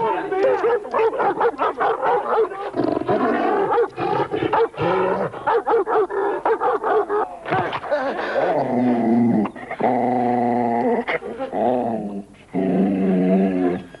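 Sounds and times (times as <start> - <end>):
dog barking: 0.4 - 2.7, 3.4 - 7.3.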